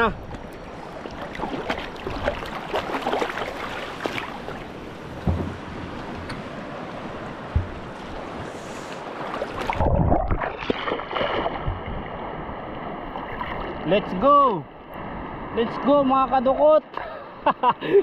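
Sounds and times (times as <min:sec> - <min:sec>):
water sloshing and splashing: 0:00.0 - 0:14.2
sharp knocks: 0:05.1 - 0:06.4, 0:07.5 - 0:07.9.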